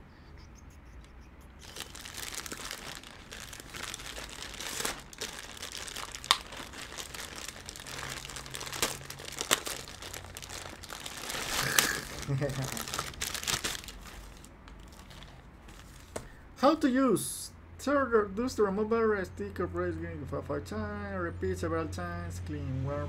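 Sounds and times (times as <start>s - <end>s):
plastic packaging crinkling: 1.6s - 16.3s.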